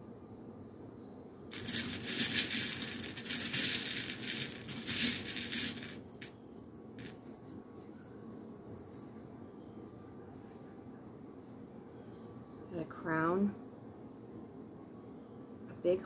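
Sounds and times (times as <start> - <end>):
metal charms jingling in glass dish: 1.5 - 7.4
metal charms clinking: 1.5 - 7.5.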